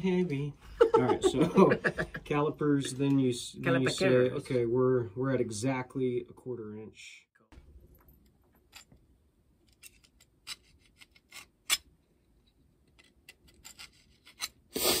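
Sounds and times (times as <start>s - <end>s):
metal-on-metal scratches: 13.0s - 14.6s.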